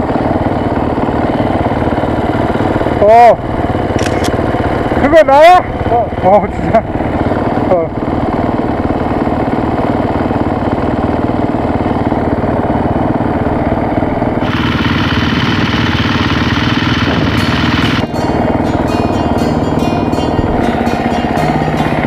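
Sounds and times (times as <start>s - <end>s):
dirt bike engine idling: 0.0s - 22.0s.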